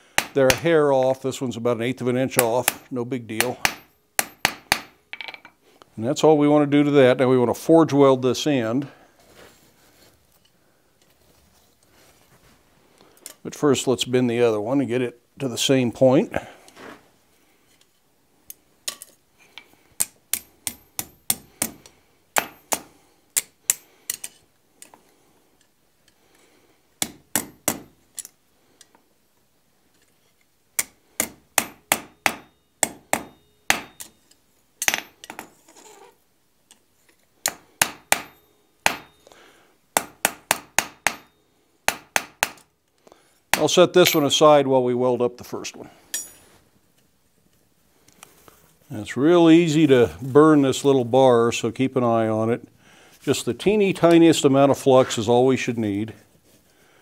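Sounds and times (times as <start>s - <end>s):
hammer striking metal bar: 0.2s - 0.6s, 2.4s - 5.4s, 22.4s - 22.9s, 30.8s - 34.1s, 37.5s - 39.2s, 40.0s - 41.3s
anvil ringing: 31.6s - 34.2s, 38.1s - 39.3s, 43.6s - 44.4s.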